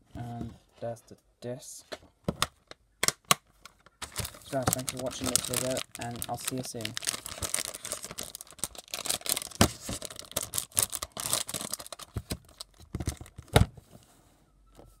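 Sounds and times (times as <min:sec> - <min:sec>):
plastic case rustling and clicking: 0:02.0 - 0:10.6, 0:11.2 - 0:13.8.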